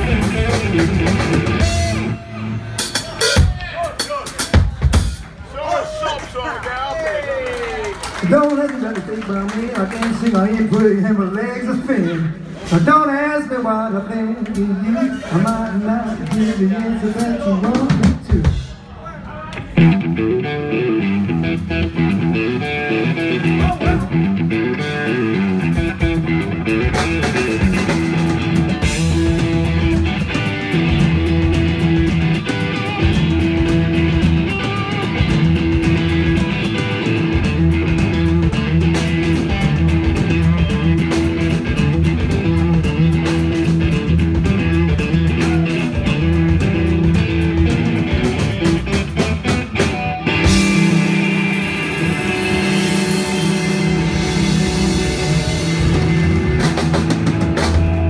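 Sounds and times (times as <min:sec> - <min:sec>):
electric guitar and bass riff: 0:00.0 - 0:03.6, 0:19.7 - 0:58.0
drum kit beat: 0:00.0 - 0:05.4, 0:14.5 - 0:18.8, 0:19.8 - 0:58.0.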